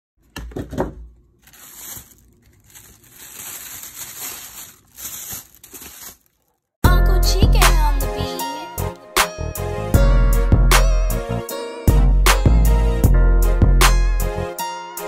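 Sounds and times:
wrapping material crinkling: 0:01.3 - 0:06.8.

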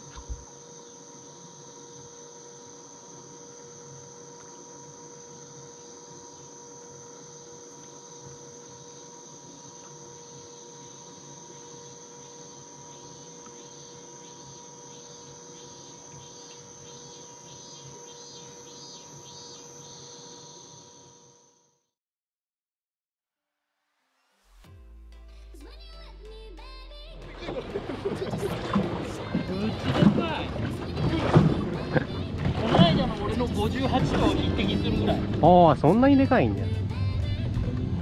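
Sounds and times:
faint steady hum: 0:00.0 - 0:21.6, 0:25.2 - 0:38.0
insects droning: 0:00.0 - 0:21.8, 0:27.2 - 0:38.0
pulsing insect call: 0:00.0 - 0:21.8, 0:27.2 - 0:38.0.

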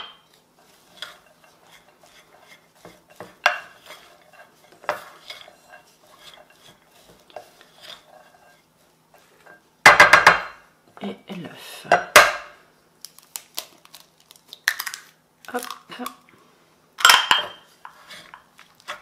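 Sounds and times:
wooden spoon scraping bowl: 0:00.6 - 0:09.6, 0:17.5 - 0:19.0.

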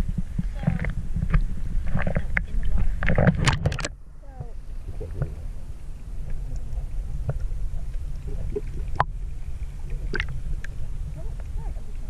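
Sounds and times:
underwater low rumble: 0:00.0 - 0:12.0
underwater clicks: 0:00.6 - 0:04.0, 0:06.2 - 0:09.1, 0:09.9 - 0:10.8
bubbling blips: 0:09.9 - 0:10.4.

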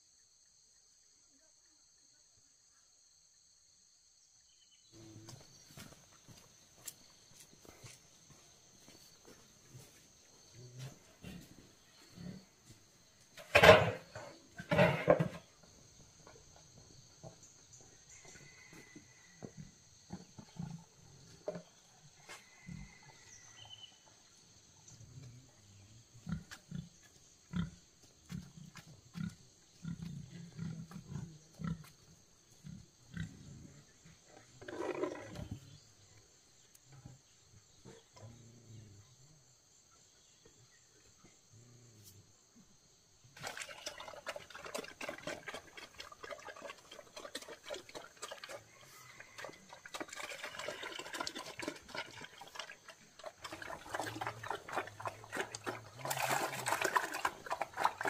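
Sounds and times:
pigs grunting: 0:13.4 - 0:15.5, 0:25.0 - 0:35.8, 0:43.4 - 0:58.0.

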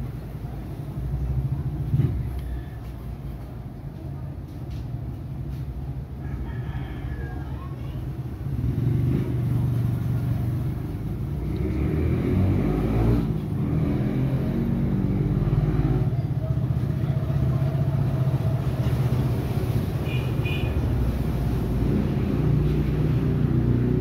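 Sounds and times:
vehicle engine running: 0:08.0 - 0:24.0.

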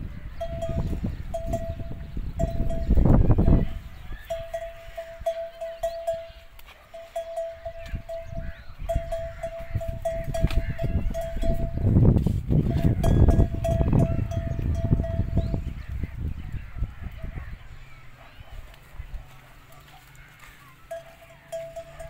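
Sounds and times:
camel bell clanking: 0:00.2 - 0:15.9, 0:20.6 - 0:22.0.

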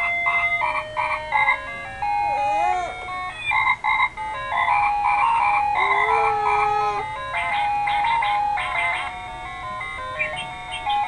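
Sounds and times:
tinny electronic toy melody: 0:00.0 - 0:11.0.

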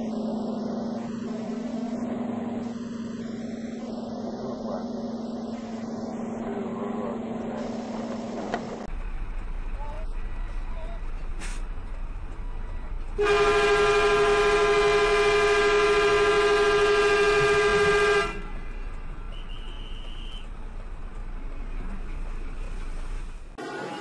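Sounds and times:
truck horn blast: 0:13.2 - 0:18.5.

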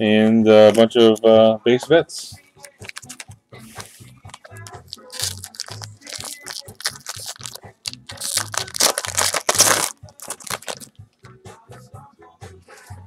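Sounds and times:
foil wrapper crinkling and tearing: 0:02.8 - 0:03.2, 0:04.7 - 0:10.9.

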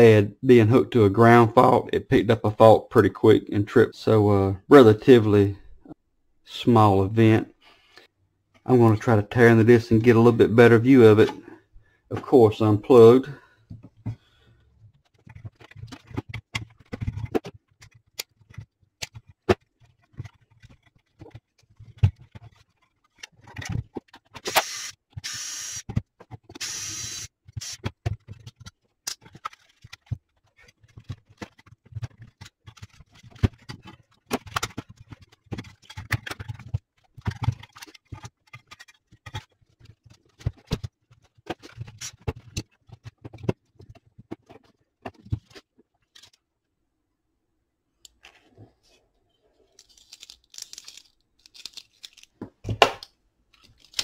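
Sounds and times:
metal parts and screws clicking: 0:15.0 - 0:44.7, 0:49.6 - 0:52.4, 0:53.5 - 0:54.0.

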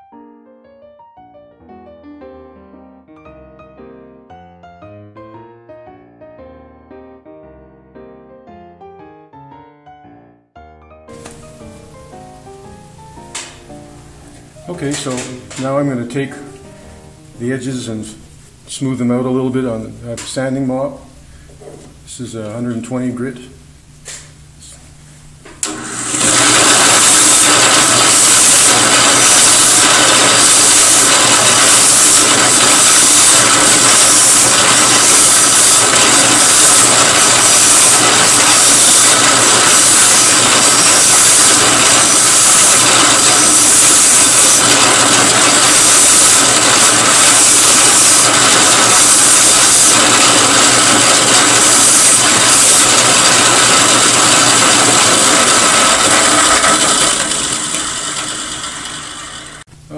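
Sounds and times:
drill press motor hum: 0:25.4 - 0:59.7
abrasive sanding hiss: 0:26.8 - 0:54.4.

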